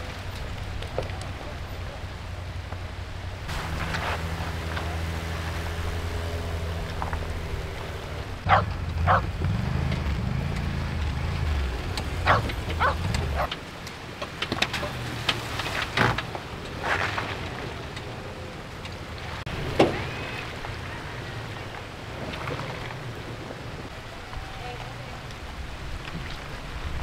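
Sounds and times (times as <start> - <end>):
low motor hum: 2.2 - 13.7
dog barking: 8.5 - 9.3, 12.2 - 13.5.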